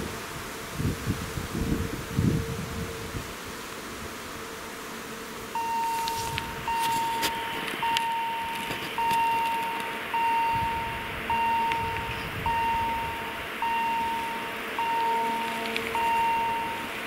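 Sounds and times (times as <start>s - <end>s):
faint steady hum: 0.0s - 17.0s
level crossing signal chiming: 5.6s - 16.9s.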